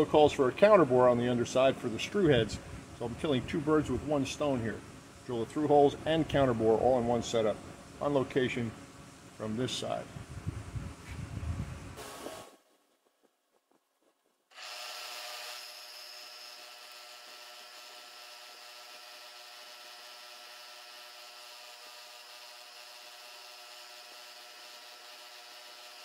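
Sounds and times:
drill bit cutting aluminium: 14.5s - 26.0s.

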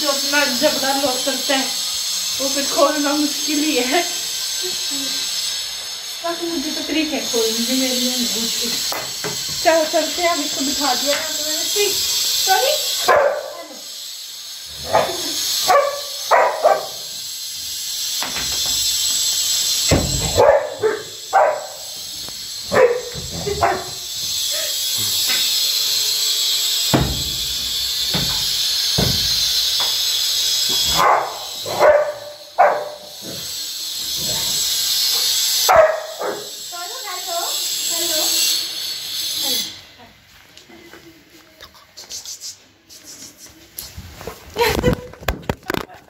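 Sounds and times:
dog barking: 13.0s - 13.7s, 14.8s - 17.0s, 20.3s - 21.9s, 22.7s - 24.0s, 30.9s - 33.1s, 35.7s - 36.5s.

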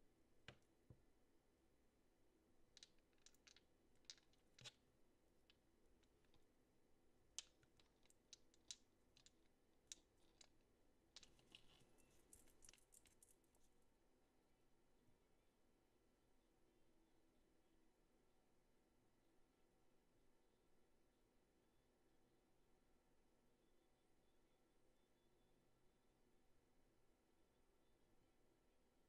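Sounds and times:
plastic bottles being handled: 11.2s - 13.4s.

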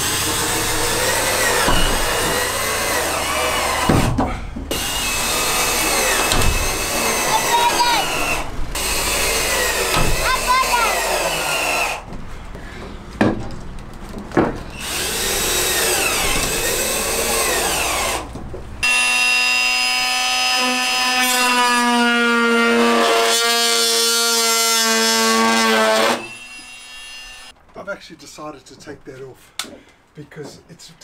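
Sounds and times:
cordless drill driving screws: 0.0s - 4.0s, 4.7s - 12.1s, 14.8s - 21.0s
power drill whining: 0.0s - 4.0s, 4.7s - 12.1s, 14.7s - 27.5s
sharp knocks: 0.7s - 10.6s.

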